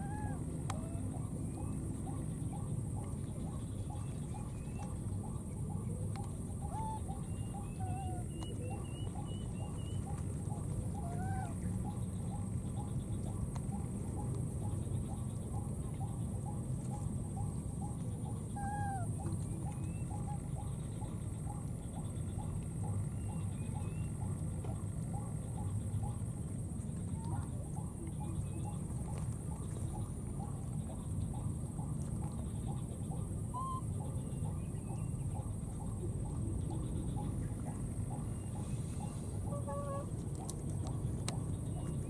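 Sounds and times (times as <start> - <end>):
low outdoor rumble: 0.0 - 42.0
small animal calling: 6.6 - 12.0, 17.8 - 20.3.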